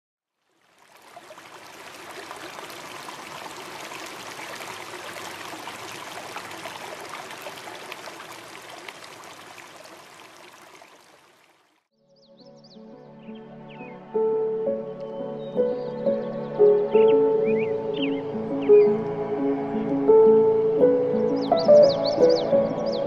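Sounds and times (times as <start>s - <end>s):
river water rushing over boulders: 0.6s - 11.6s.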